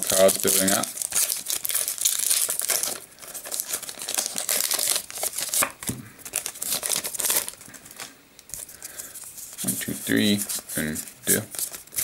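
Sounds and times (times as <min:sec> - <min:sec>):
foil wrapper crinkling and tearing: 0:00.0 - 0:12.0.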